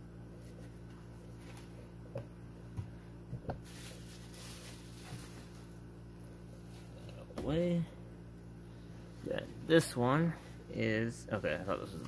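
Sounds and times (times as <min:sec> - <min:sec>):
steady low hum: 0:00.0 - 0:12.0
packing rustle: 0:03.6 - 0:05.8.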